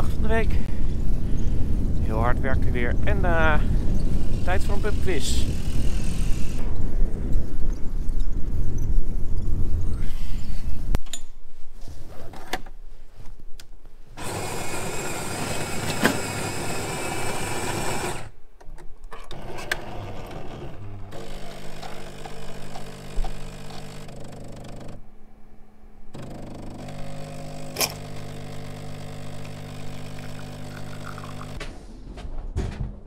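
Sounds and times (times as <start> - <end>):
wind rumble on microphone: 0.0 - 11.0
coffee machine grinding: 4.1 - 6.6, 14.2 - 18.3, 19.2 - 25.0, 26.2 - 31.6
coffee machine pump humming: 14.2 - 18.3, 20.2 - 25.0, 26.1 - 31.6.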